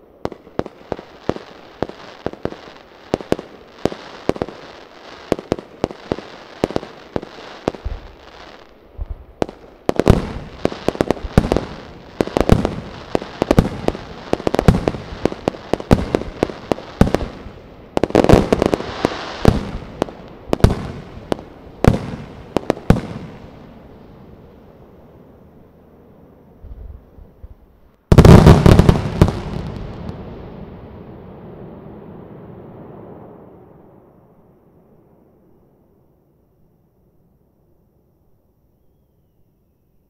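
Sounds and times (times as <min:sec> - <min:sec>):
firework crackling: 0:00.0 - 0:24.8, 0:26.6 - 0:33.7.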